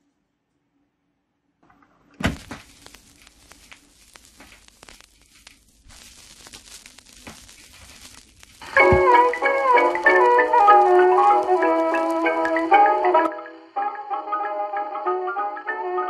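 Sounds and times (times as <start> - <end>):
vinyl crackles and pops: 1.7 - 13.6
stylus thump on record: 2.2 - 2.7, 8.8 - 9.2.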